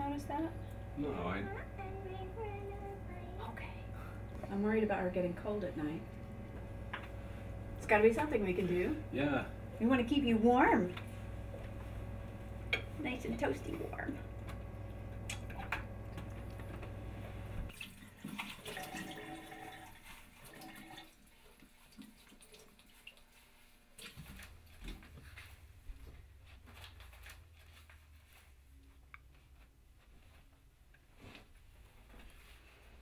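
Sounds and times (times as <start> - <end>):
low steady hum: 0.0 - 31.2
running splashing water: 17.7 - 23.5.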